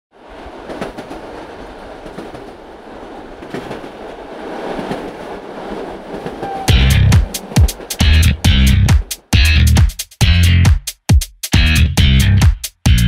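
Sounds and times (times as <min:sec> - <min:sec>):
train wheels clacking on rails: 0:00.5 - 0:10.2.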